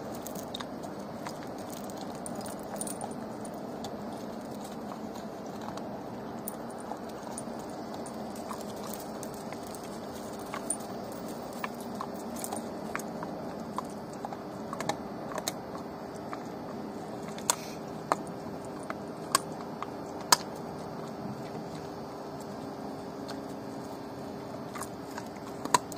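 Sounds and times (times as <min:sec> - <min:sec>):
collar chain clinking: 0:00.0 - 0:14.2
dog chewing bones: 0:00.0 - 0:25.9.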